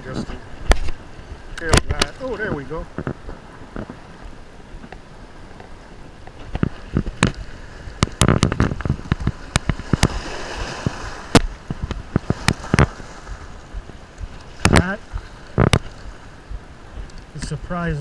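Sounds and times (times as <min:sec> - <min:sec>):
small waves on rocks: 0:00.0 - 0:18.0.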